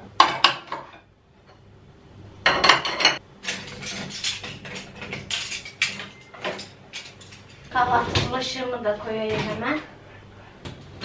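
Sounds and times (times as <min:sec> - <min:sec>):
dishes clinking and clattering: 0:02.4 - 0:08.3.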